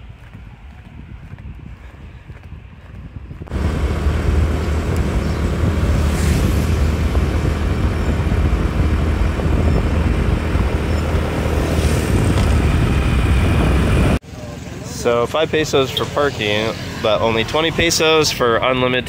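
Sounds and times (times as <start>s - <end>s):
motor vehicle engine rumble: 0.0s - 19.0s
rushing noise: 3.5s - 18.1s.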